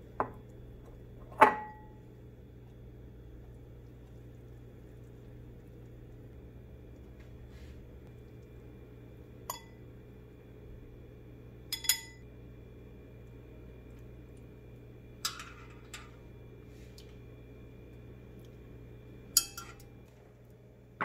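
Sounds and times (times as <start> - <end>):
steady low hum: 0.0 - 21.0
tongs clinking against bowls: 9.5 - 9.8, 11.7 - 12.2, 15.2 - 16.2, 19.3 - 19.9.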